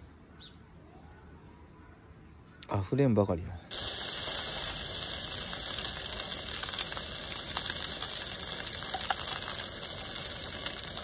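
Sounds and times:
meat sizzling in a pan: 3.7s - 11.0s.

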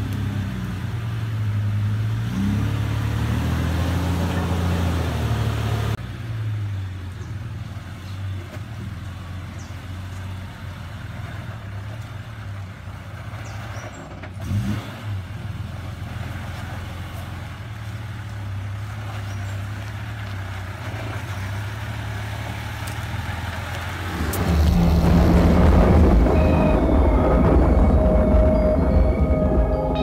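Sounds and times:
truck engine running at low revs: 0.0s - 30.0s
loud music: 24.4s - 30.0s.

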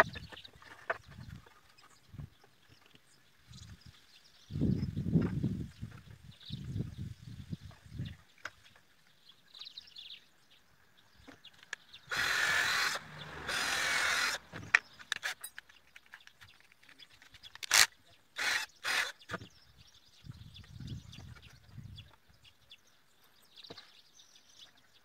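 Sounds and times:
cordless drill drilling into wood: 12.1s - 15.4s, 17.6s - 19.4s.

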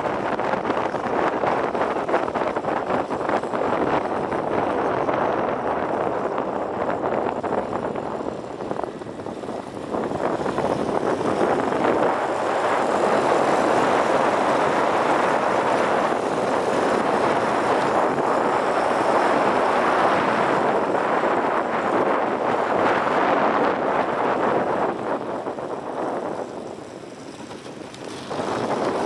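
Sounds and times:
motorbike road noise: 0.0s - 29.0s
wind rushing over microphone: 0.0s - 29.0s.

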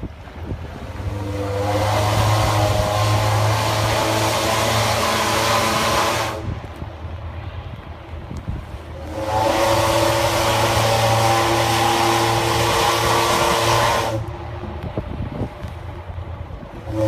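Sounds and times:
loud steam hiss: 0.8s - 6.5s, 9.0s - 14.4s
steam whistle chord: 1.1s - 6.4s, 9.0s - 14.3s.

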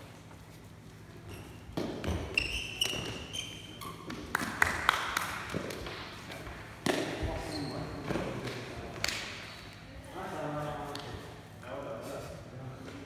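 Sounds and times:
sneaker squeaks: 1.0s - 4.3s, 7.0s - 8.4s.

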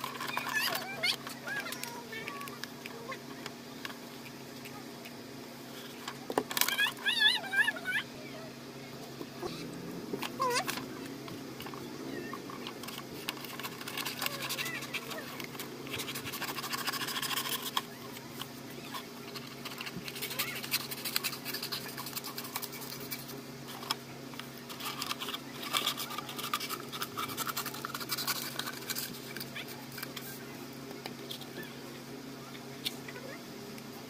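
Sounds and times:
steady low hum: 0.0s - 34.0s
paper crackling and rustling: 10.2s - 30.5s.

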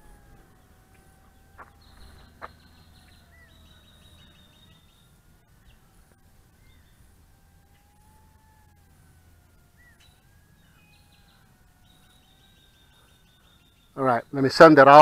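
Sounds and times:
fast bird trill: 0.0s - 5.8s, 9.7s - 15.0s
birds chirping: 0.0s - 15.0s
electric motor and propeller hum: 0.0s - 15.0s.

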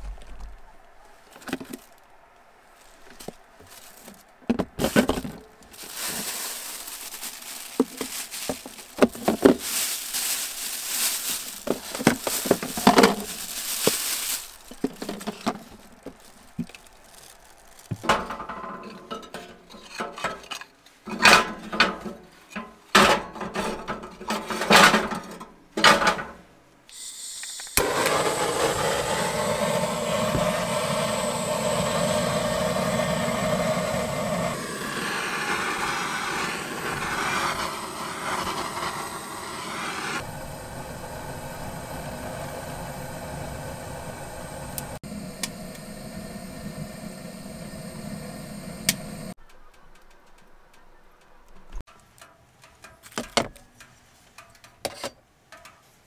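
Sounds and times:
plastic bag crinkling: 2.9s - 18.1s
blowtorch hissing: 5.8s - 15.0s, 26.9s - 49.4s.

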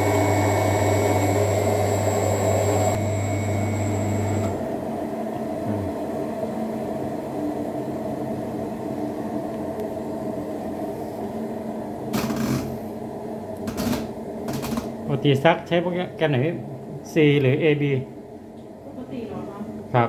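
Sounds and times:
washing machine motor humming: 0.0s - 8.3s.

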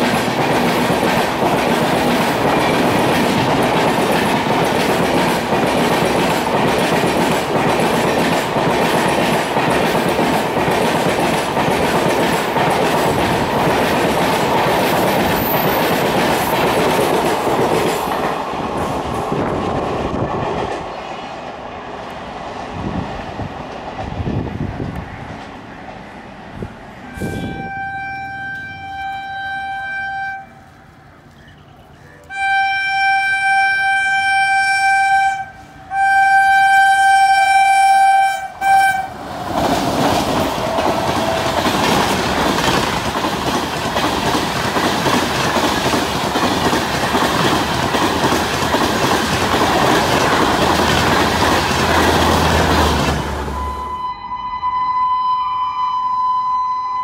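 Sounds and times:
wheels rushing and clattering on rails: 0.0s - 54.0s
train passing at speed: 0.0s - 54.8s
train horn blasts: 27.0s - 30.7s, 32.2s - 39.2s, 52.5s - 57.0s.

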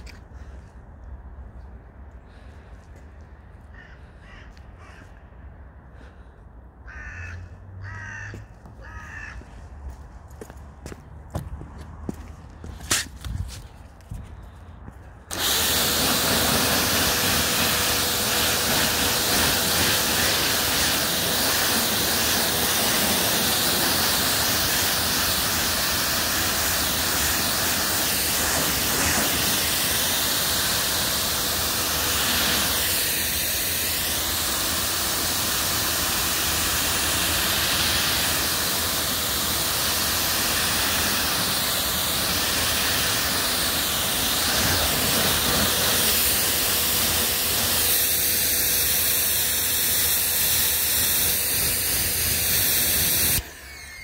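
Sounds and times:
pressure washer spraying water: 15.3s - 54.0s.

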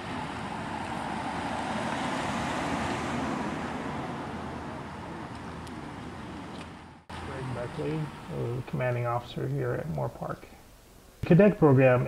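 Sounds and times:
passing cars rushing: 0.0s - 8.6s.

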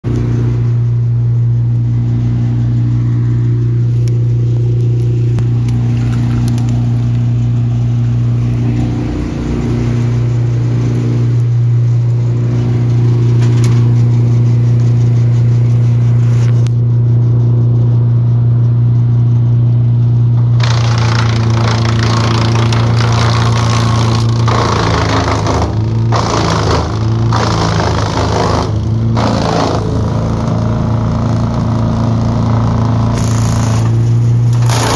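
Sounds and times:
wood chipper engine hum: 0.0s - 34.9s
brushwood being chipped: 3.9s - 7.6s, 20.6s - 30.6s, 33.1s - 34.9s.

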